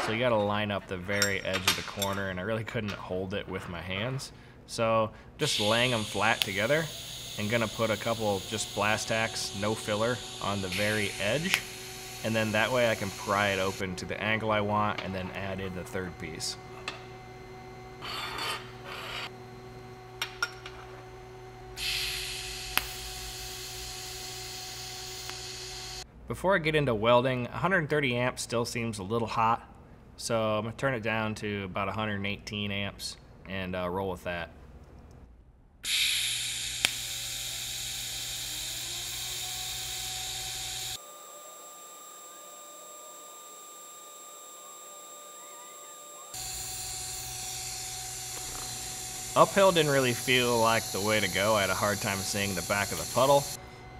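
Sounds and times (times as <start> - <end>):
electrical hum: 0.0 - 26.3, 34.1 - 53.9
welding torch hissing: 5.4 - 14.7, 21.8 - 26.0, 35.8 - 41.0, 46.3 - 53.6
thin high whine: 5.4 - 19.4, 20.2 - 26.0, 35.8 - 53.9.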